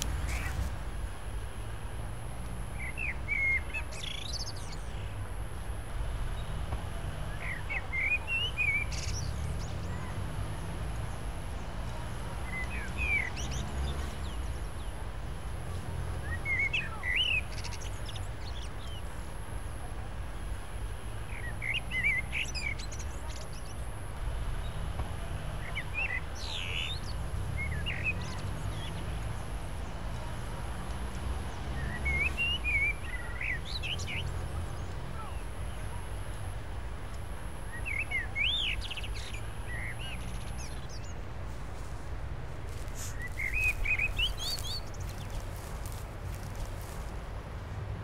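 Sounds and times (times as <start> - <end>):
bird chirping: 42.8 - 46.7.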